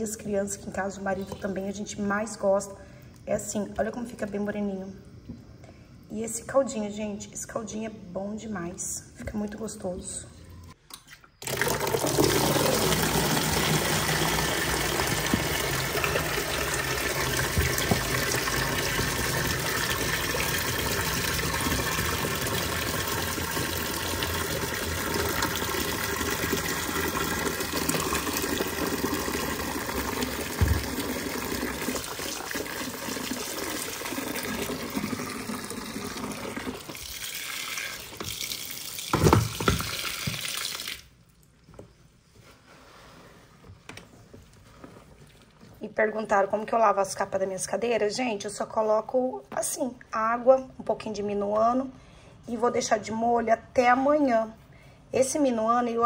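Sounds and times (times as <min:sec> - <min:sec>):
water running from a tap: 0:11.4 - 0:41.1.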